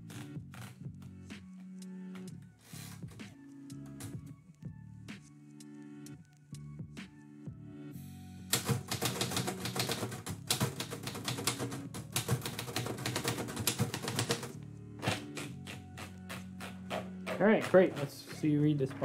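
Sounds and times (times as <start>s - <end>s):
manual typewriter keystrokes: 8.5s - 18.1s.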